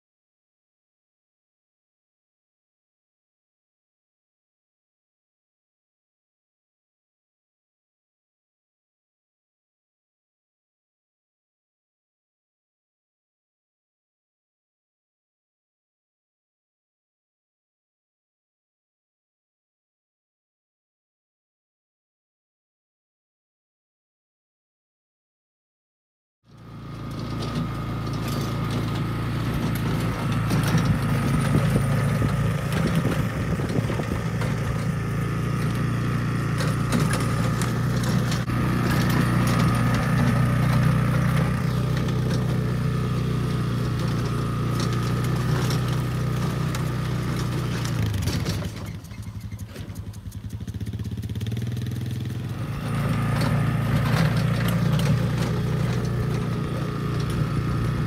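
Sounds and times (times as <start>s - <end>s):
engine running: 26.5s - 58.0s.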